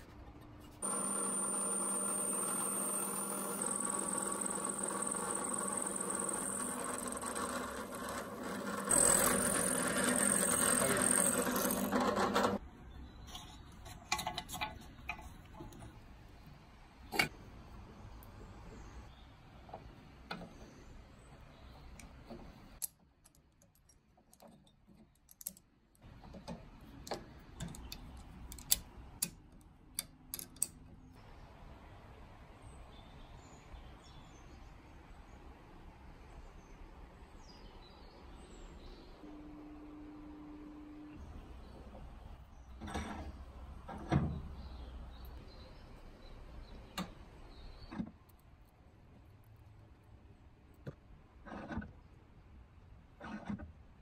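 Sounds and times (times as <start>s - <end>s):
machine motor humming: 0.8s - 12.6s
metallic clicks of hand tools: 27.1s - 30.8s.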